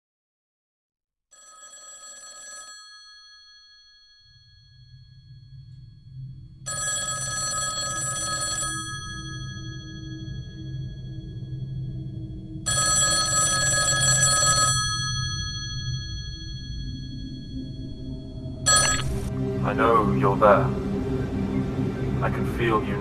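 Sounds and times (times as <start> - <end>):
telephone bell ringing: 1.3 - 5.3, 6.7 - 10.6, 12.6 - 17.6, 18.7 - 19.3
low steady drone: 4.6 - 7.8, 8.8 - 23.0.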